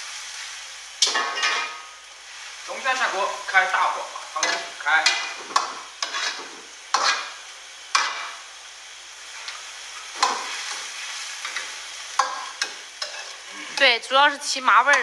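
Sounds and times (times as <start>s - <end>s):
gas flame hiss: 0.0s - 14.5s
metal ladle scraping wok: 6.0s - 7.4s, 9.4s - 14.0s.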